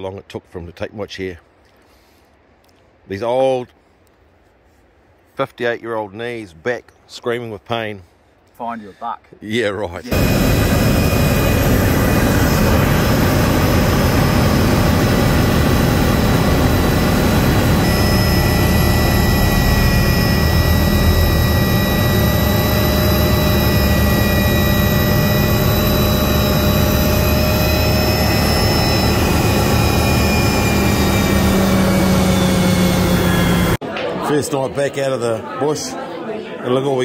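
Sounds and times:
high whine tones: 10.0 - 33.8
helicopter engine and rotor: 10.1 - 33.8.

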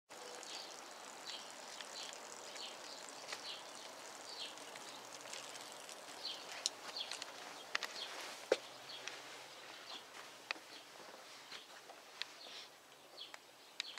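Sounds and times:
small bird chirping: 0.1 - 11.7, 12.4 - 13.9
outdoor background noise: 0.1 - 13.9.

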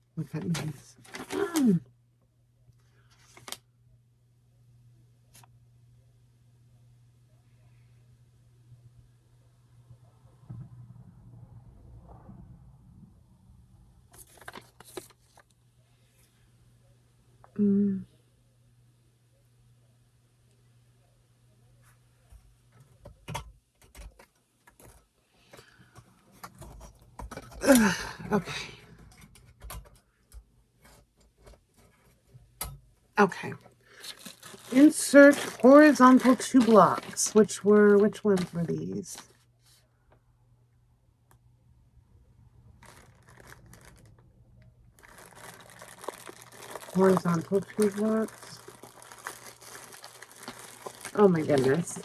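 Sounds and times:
packaging crinkling: 0.4 - 1.8, 3.1 - 3.6, 14.1 - 15.6, 33.8 - 39.4, 42.7 - 52.0.

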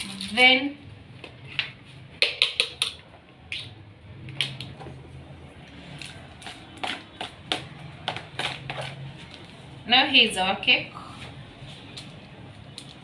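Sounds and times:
spatula tapping and scraping bowl: 6.4 - 9.0.

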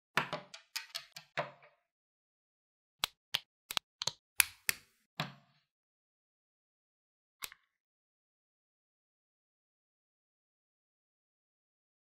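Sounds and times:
plastic bricks clicking together: 0.2 - 1.5.

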